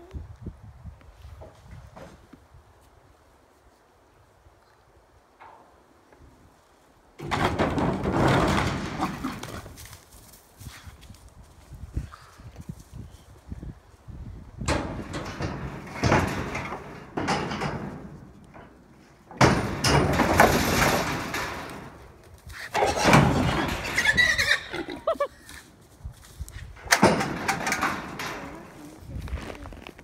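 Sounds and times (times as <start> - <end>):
gate panels rattling: 7.2 - 9.8, 14.6 - 24.8, 26.7 - 29.0
hooves clattering on metal floor: 7.2 - 10.1, 14.6 - 25.6, 26.2 - 29.5.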